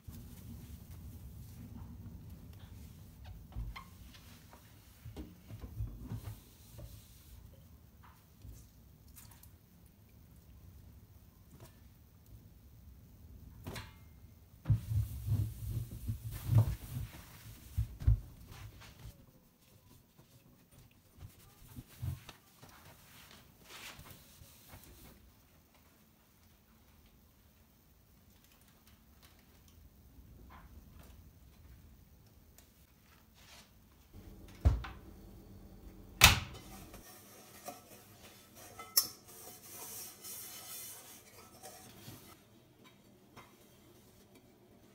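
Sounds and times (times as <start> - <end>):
cloth rubbing steel sink: 35.0 - 42.5.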